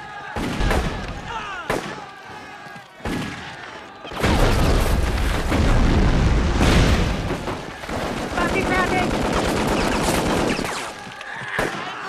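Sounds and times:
loud explosion with deep rumble: 4.2 - 7.7.

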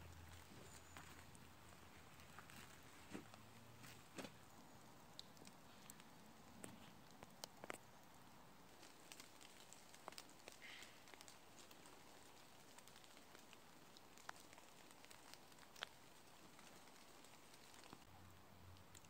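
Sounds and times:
quiet steady hiss: 0.0 - 19.0
water drops pattering on leaves: 4.1 - 19.0.

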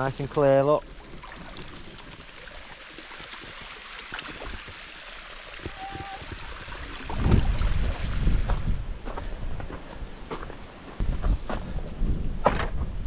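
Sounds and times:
sea water lapping at shoreline: 0.2 - 8.6
wind buffeting microphone: 5.6 - 13.0.

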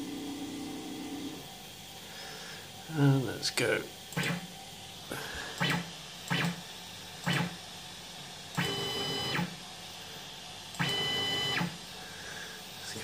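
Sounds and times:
stepper motor whine: 0.0 - 2.0, 2.6 - 9.7, 10.7 - 13.0
stepper motors whirring: 4.1 - 4.6, 5.5 - 6.6, 7.2 - 7.6.

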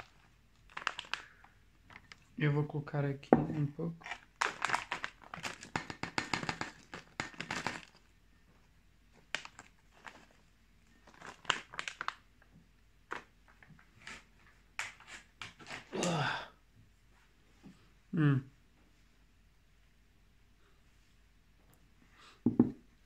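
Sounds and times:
plastic snack bag crinkling: 0.0 - 2.4, 4.0 - 8.1, 9.1 - 12.3.

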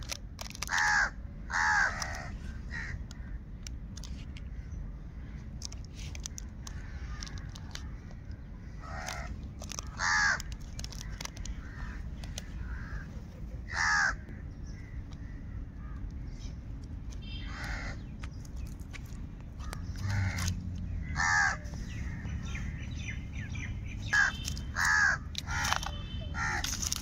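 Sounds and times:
plastic packets crinkling: 0.0 - 0.8, 5.6 - 8.1, 9.0 - 12.5, 24.1 - 27.0
crow cawing: 0.7 - 3.4, 8.8 - 13.1, 13.7 - 16.0, 17.4 - 18.0, 19.7 - 22.3, 24.1 - 25.8, 26.4 - 26.7.

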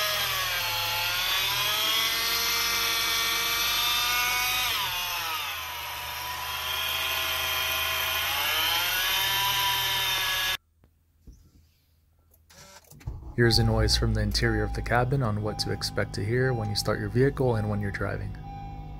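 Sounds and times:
high whine from belt pulley: 0.0 - 10.6.

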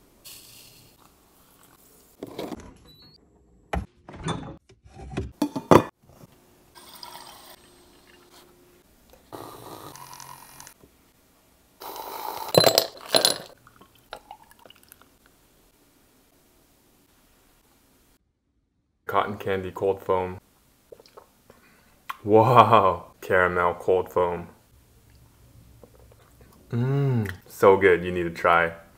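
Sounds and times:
coffee poured over ice: 12.4 - 15.1
glass jars and mugs clinking: 12.5 - 13.6.

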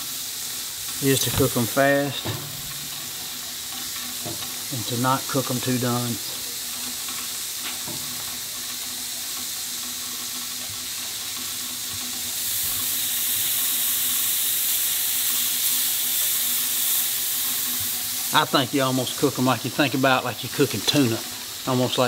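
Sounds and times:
steaks sizzling on a grill: 0.0 - 22.0.

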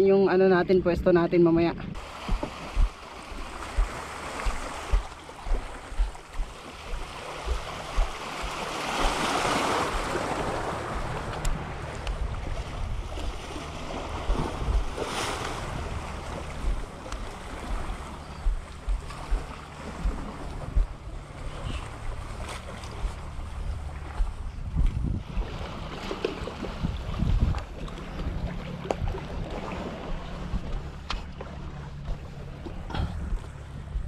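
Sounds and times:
wind buffeting microphone: 0.0 - 34.0
surf rushing: 2.0 - 24.0
small waves on rocky shore: 2.0 - 24.4, 25.2 - 30.5.

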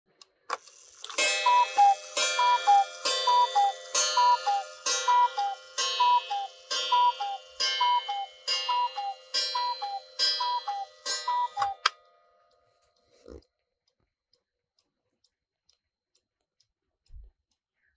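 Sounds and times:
clock mechanism clicks: 0.2 - 12.1
clock ringing strike: 1.1 - 11.9
two-note cuckoo calls: 1.2 - 11.9.

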